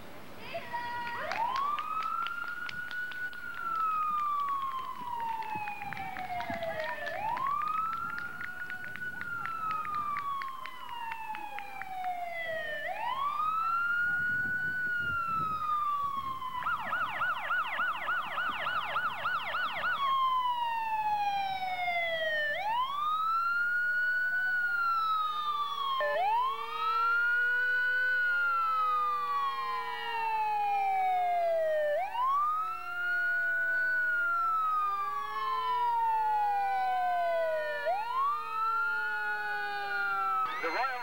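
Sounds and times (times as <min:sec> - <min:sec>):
siren wailing and yelping: 0:01.3 - 0:41.0.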